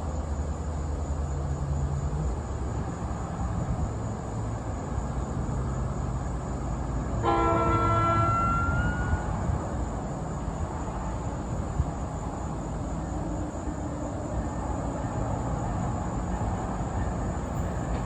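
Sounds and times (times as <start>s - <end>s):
low rumble of train: 0.0s - 18.0s
train horn chime blast: 7.2s - 9.6s.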